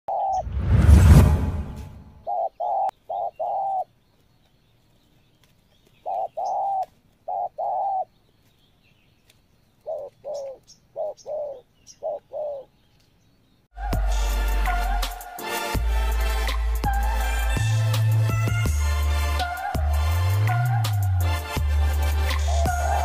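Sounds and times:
doves cooing: 2.2s - 3.9s, 5.9s - 8.2s, 9.8s - 12.8s, 22.3s - 23.0s.

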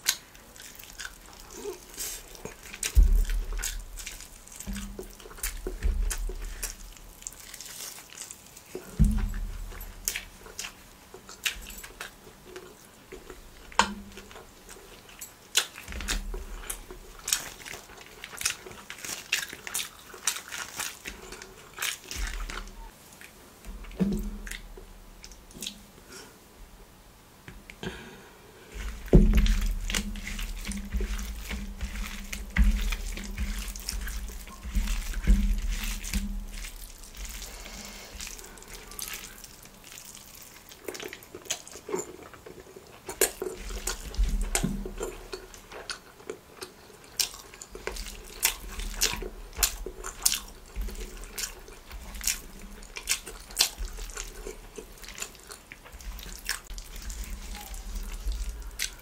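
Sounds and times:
fingers squelching wet food: 0.0s - 25.8s, 28.7s - 59.0s
chewing: 0.0s - 26.3s, 28.7s - 59.0s.

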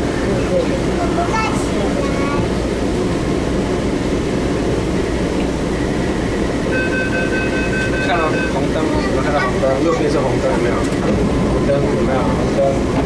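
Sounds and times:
train car hum: 0.0s - 13.0s
high two-tone door warning beeping: 6.7s - 8.6s.

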